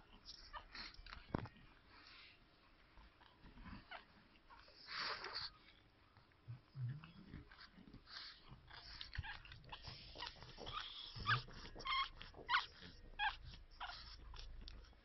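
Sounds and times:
puppy whimpering and squealing: 8.2 - 15.0.

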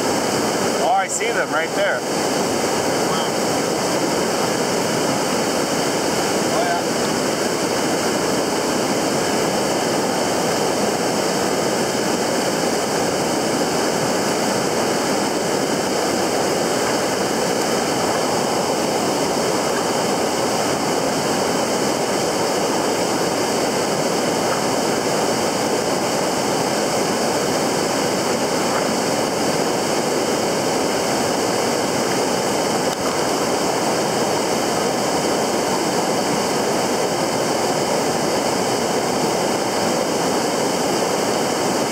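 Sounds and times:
fast-flowing river water: 0.0 - 41.9.

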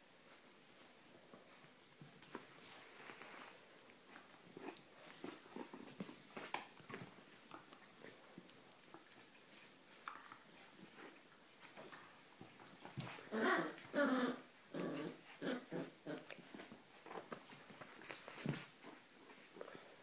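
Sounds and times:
dog play-growling: 4.2 - 8.1, 12.6 - 19.0.

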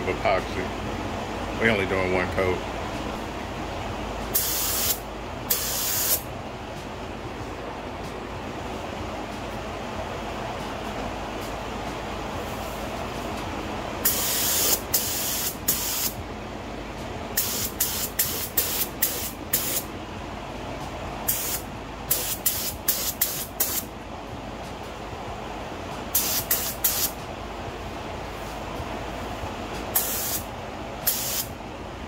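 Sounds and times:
spray gun hissing in bursts: 4.4 - 6.2, 14.0 - 16.2, 17.4 - 19.8, 21.3 - 23.9, 26.2 - 27.1, 30.0 - 31.5.

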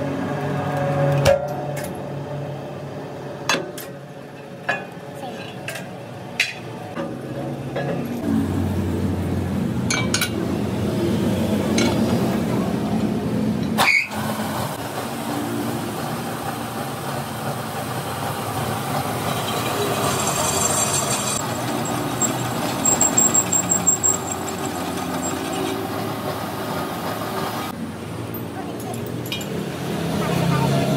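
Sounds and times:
metal lathe droning: 18.9 - 26.6.

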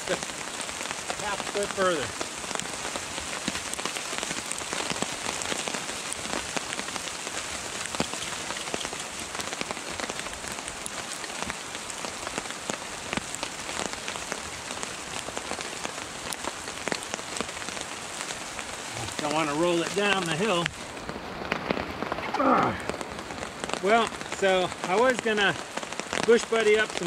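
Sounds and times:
rain pattering on a tarp: 0.0 - 27.0.

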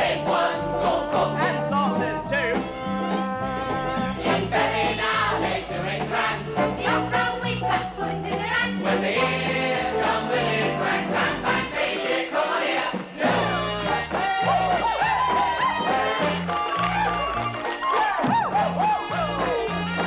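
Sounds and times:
group of voices singing: 0.0 - 2.6, 3.4 - 14.8
band with walking bass line: 0.0 - 11.7, 13.2 - 20.0.

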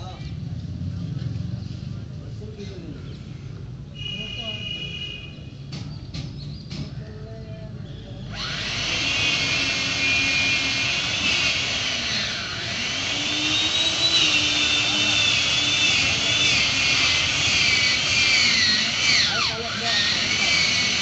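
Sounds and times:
chainsaw cutting tree trunk: 8.4 - 21.0.

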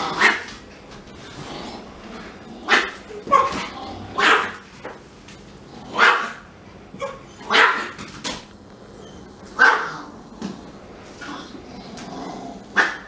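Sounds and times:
small dog barking: 4.2 - 4.6, 6.0 - 6.4, 7.0 - 8.0, 9.6 - 10.0, 12.8 - 13.0.

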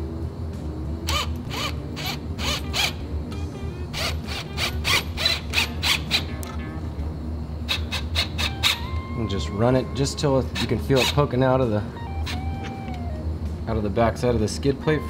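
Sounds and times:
cordless ratchet rasping: 1.0 - 3.0, 3.9 - 6.4, 7.7 - 8.9.

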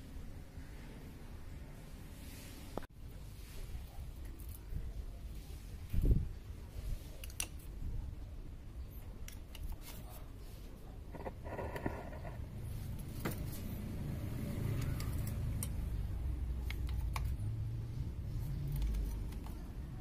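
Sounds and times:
motor vehicle passing rumble: 12.3 - 16.5.

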